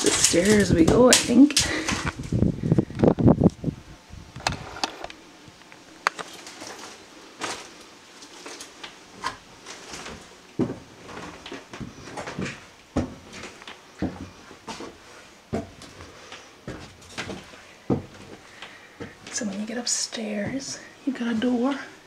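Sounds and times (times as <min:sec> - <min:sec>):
footsteps on wooden stairs: 0:06.2 - 0:21.9.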